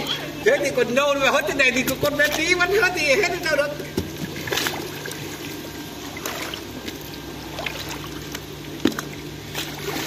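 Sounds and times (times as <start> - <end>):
pond water lapping and trickling: 0.0 - 10.0
small water splashes: 1.3 - 2.9, 3.8 - 10.0.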